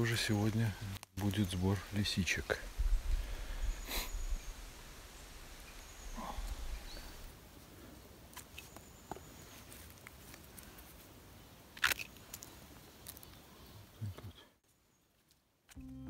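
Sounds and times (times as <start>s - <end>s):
rustling of forest litter: 0.0s - 15.4s
sharp crackle: 0.4s - 7.4s.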